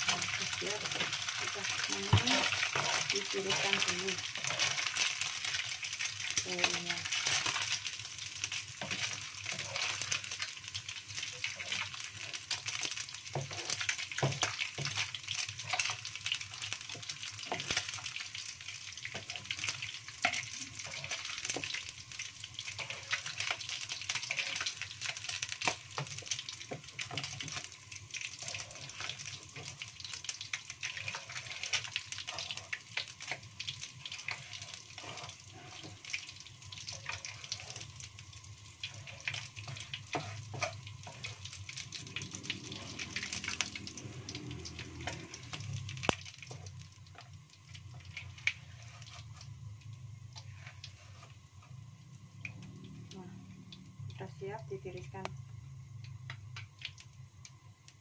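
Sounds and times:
oil sizzling in a wok: 0.0s - 58.0s
wooden spatula scraping: 0.1s - 5.8s, 8.7s - 16.0s, 19.0s - 38.1s, 38.8s - 45.6s, 47.9s - 49.6s, 50.3s - 51.8s.

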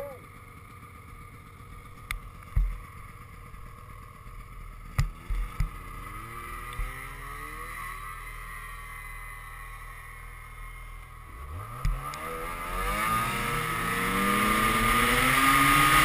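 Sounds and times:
snowmobile engine: 0.0s - 16.0s
sharp engine knocks: 2.1s - 2.8s.

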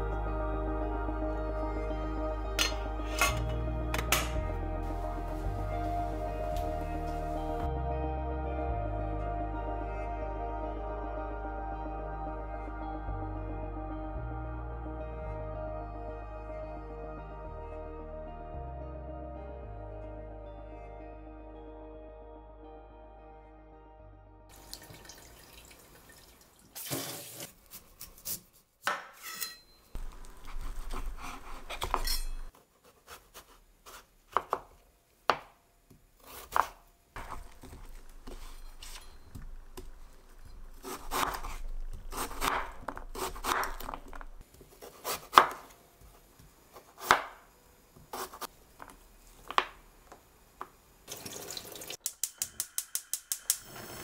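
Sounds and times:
knife cutting radish: 27.7s - 29.0s, 30.0s - 34.7s, 36.2s - 39.1s, 40.8s - 45.7s.

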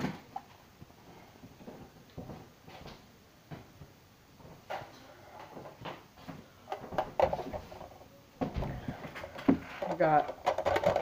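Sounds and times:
knocks and rustles of handling: 0.0s - 11.0s.

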